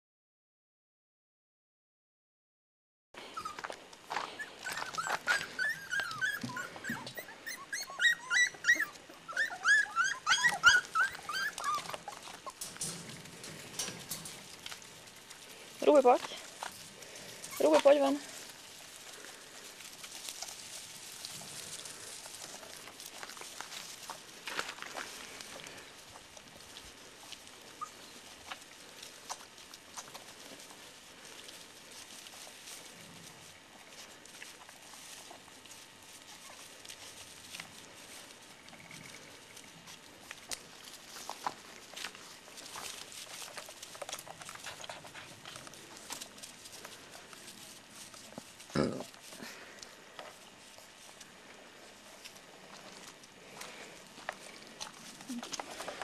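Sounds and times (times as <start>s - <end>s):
puppies rustling in straw: 3.2s - 56.0s
puppies whining and yelping: 3.3s - 14.3s, 27.2s - 28.5s, 36.0s - 37.3s.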